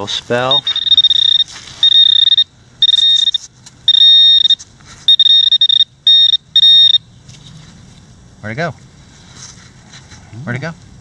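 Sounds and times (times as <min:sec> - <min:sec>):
metal detector alarm tone: 0:00.4 - 0:07.0.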